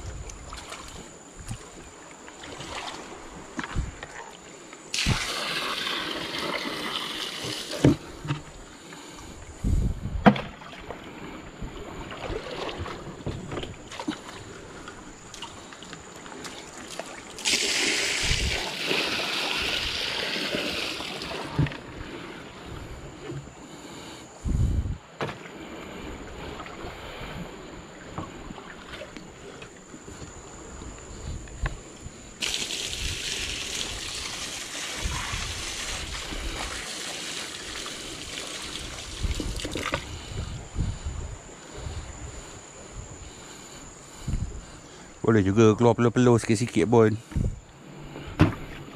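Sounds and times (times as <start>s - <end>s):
water splashing on stone steps: 4.9s - 8.1s, 16.3s - 21.8s, 32.4s - 40.0s
thump: 48.4s - 48.7s.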